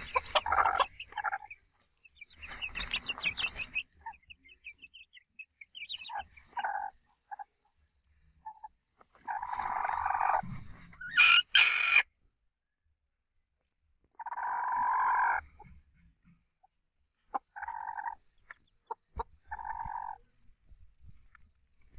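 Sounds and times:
chickens squawking: 0:00.0 - 0:01.7, 0:02.3 - 0:04.4, 0:05.8 - 0:07.5, 0:09.2 - 0:12.1, 0:14.2 - 0:15.6, 0:17.3 - 0:18.2, 0:18.8 - 0:20.2.

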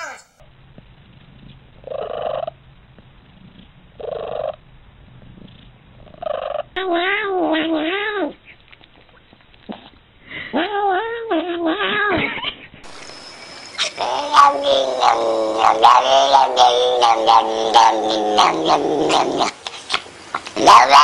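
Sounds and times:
cats calling and yowling: 0:06.2 - 0:08.6, 0:10.4 - 0:21.0.

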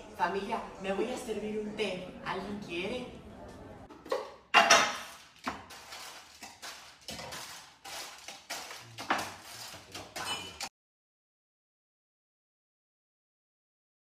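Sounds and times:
ceramic mugs clinking: 0:08.3 - 0:10.7.

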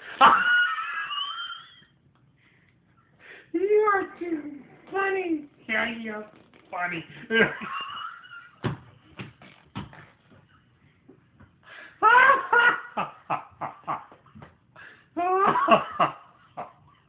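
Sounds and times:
man laughing: 0:12.0 - 0:14.2, 0:15.2 - 0:16.8.

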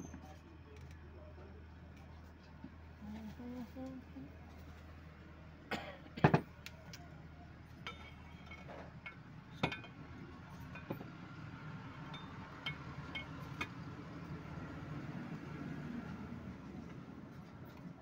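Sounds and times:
steel parts clinking and knocking: 0:07.8 - 0:10.0.

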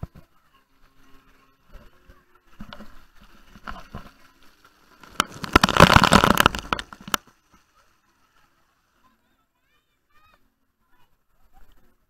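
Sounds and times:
water spattering on camera: 0:05.0 - 0:07.3.

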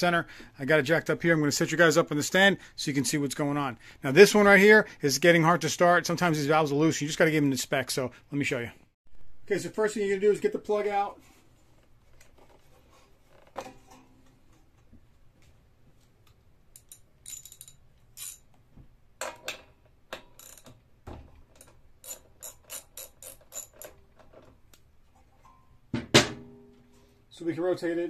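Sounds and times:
socket ratchet clicking: 0:20.1 - 0:20.8, 0:21.6 - 0:24.0
loud clunk: 0:25.9 - 0:26.8.

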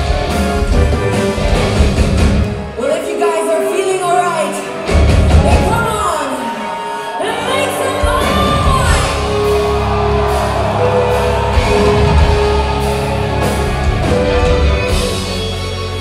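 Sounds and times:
bass: 0:00.0 - 0:02.6, 0:04.9 - 0:06.1, 0:07.9 - 0:16.0
drums: 0:00.0 - 0:16.0.

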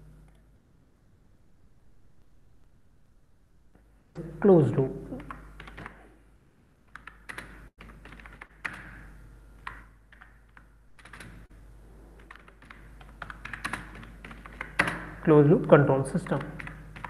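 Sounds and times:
computer keyboard typing: 0:05.1 - 0:06.1, 0:06.9 - 0:11.5, 0:12.2 - 0:17.0.

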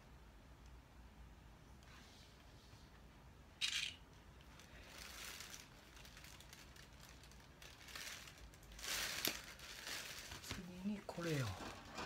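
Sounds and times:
soft plastic rustling: 0:04.1 - 0:12.0.

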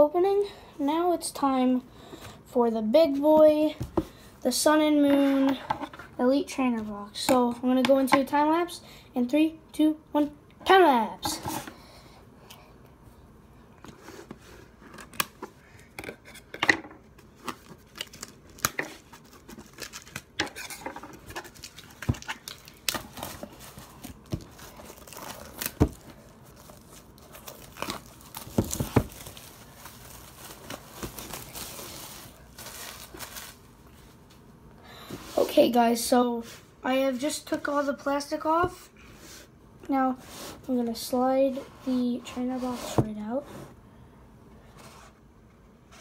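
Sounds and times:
shrink wrap tearing and crinkling: 0:17.5 - 0:33.7.

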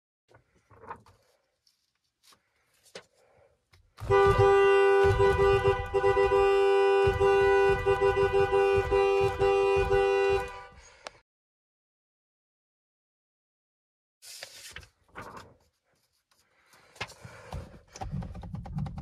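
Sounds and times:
hand thumping horn pad: 0:04.0 - 0:10.7
car horn honking: 0:04.0 - 0:11.1.

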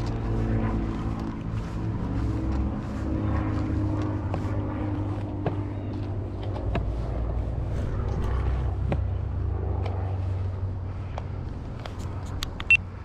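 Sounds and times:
footsteps on decking: 0:00.0 - 0:09.1
low mechanical hum: 0:00.0 - 0:13.0.

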